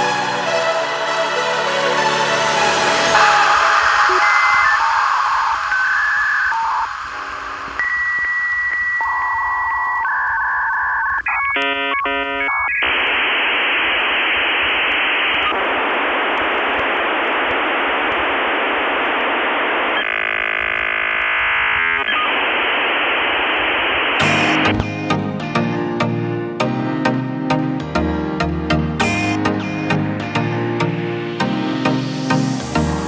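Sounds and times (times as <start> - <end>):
music: 0.0 - 7.8, 24.2 - 33.0
dial-up modem connecting: 3.2 - 25.2.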